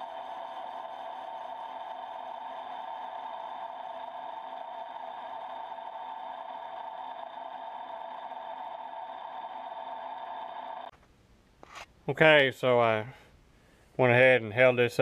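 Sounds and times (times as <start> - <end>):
milling cutter machine whine: 0.0 - 10.9.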